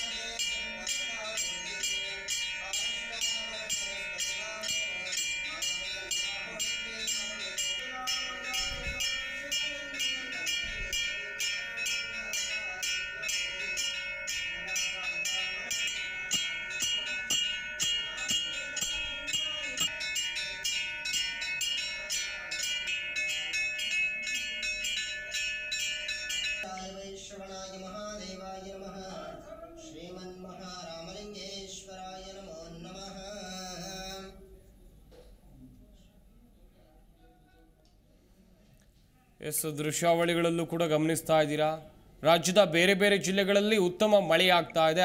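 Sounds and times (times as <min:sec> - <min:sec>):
temple bell ringing: 0:00.0 - 0:29.4.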